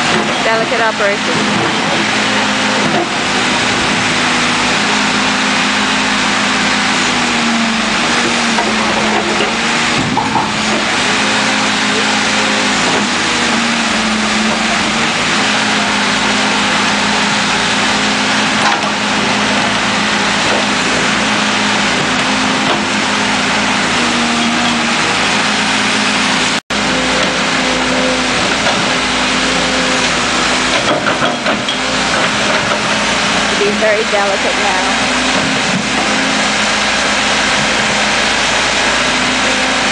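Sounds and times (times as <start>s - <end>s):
backhoe loader engine running: 0.0s - 39.9s.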